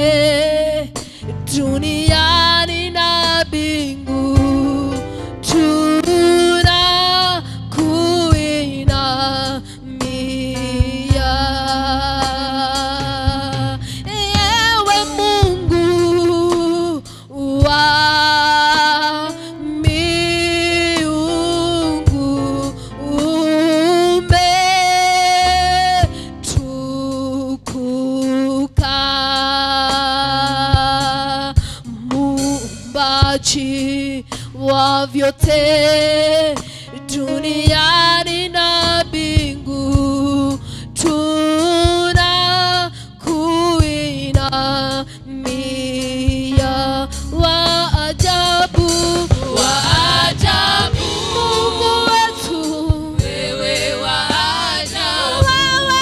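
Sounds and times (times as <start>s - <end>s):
woman singing: 0.0s - 53.3s, 55.2s - 56.0s
instrumental accompaniment: 46.3s - 56.0s.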